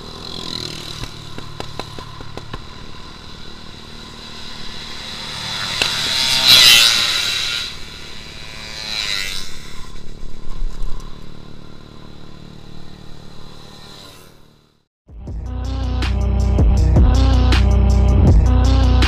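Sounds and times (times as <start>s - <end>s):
scooter engine revving: 0.0s - 14.8s.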